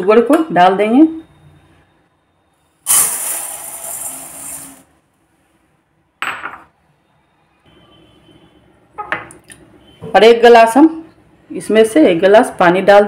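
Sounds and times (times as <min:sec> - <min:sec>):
sugar hissing onto steel bowl: 0:02.9 - 0:04.9.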